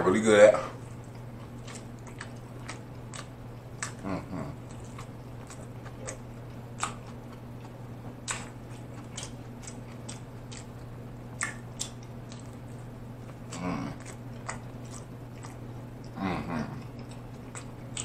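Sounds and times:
chewing with mouth smacks: 0.8 - 18.0.

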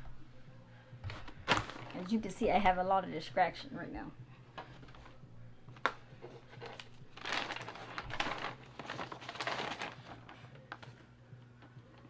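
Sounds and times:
packaging rustling and crinkling: 1.1 - 2.3, 5.8 - 11.0.

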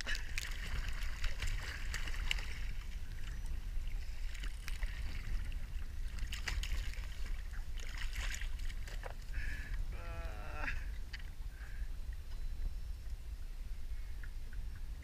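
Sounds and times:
sea water splashing: 0.0 - 11.8
wind rumble on microphone: 0.0 - 15.0.

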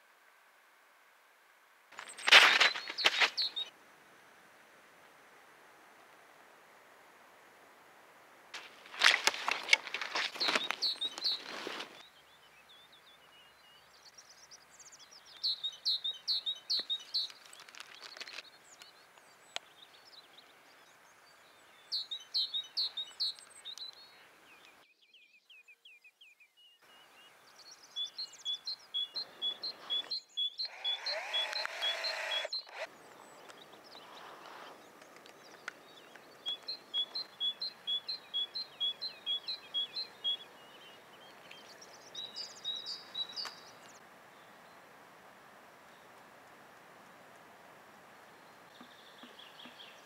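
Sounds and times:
noisy rustling: 1.8 - 7.7, 8.3 - 12.1
songbirds chirping: 1.9 - 3.8, 8.6 - 50.0.

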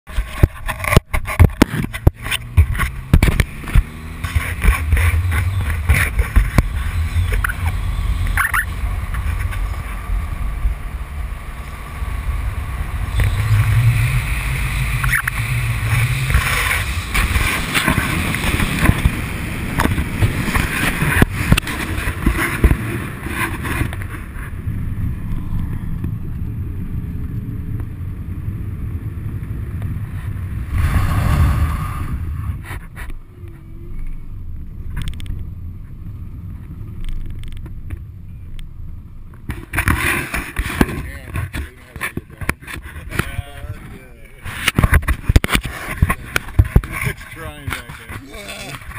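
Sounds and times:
car engine revving: 0.7 - 34.3
wind buffeting: 30.3 - 33.0.

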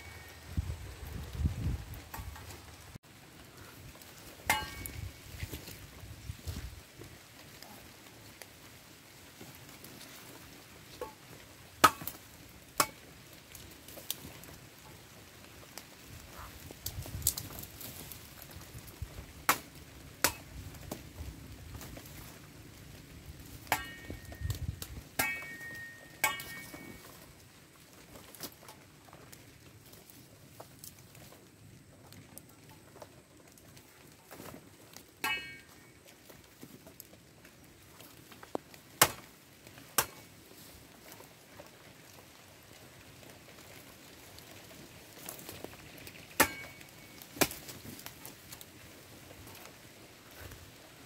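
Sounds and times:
machete chopping stalks: 11.8 - 12.2, 19.4 - 20.5, 25.2 - 27.0, 39.0 - 39.3, 39.9 - 40.3, 46.4 - 47.8
metallic ring of blade: 25.2 - 27.0.

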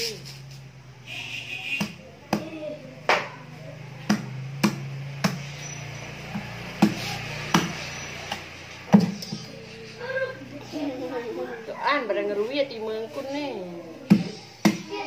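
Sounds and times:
cleaver chopping on wooden block: 4.0 - 5.5, 6.4 - 9.2, 14.1 - 14.9.

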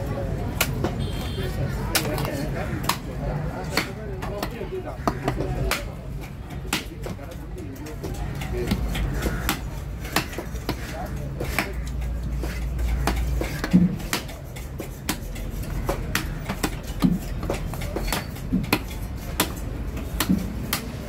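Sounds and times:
voices: 0.0 - 21.0
knife chopping on wooden block: 8.1 - 21.0.

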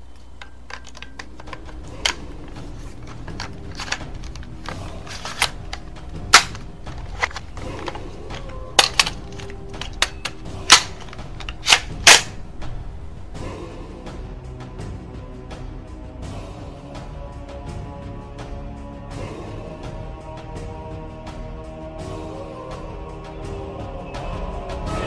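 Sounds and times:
sharp clicks and snaps: 0.0 - 13.4
steady low hum: 0.0 - 13.5.

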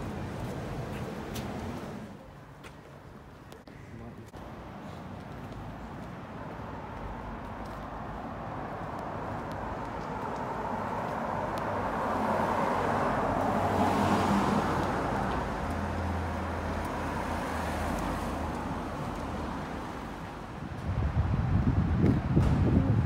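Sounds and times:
low steady traffic hum: 0.0 - 23.0
vehicle passing: 6.6 - 23.0
wind buffeting microphone: 20.6 - 23.0.

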